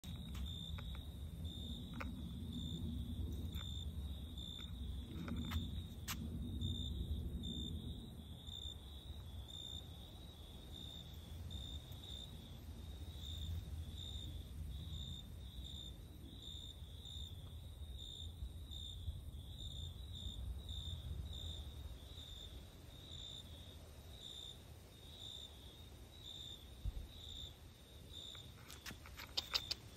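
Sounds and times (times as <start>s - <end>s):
steady low rumble: 0.0s - 16.4s
cricket chirping: 0.0s - 29.9s.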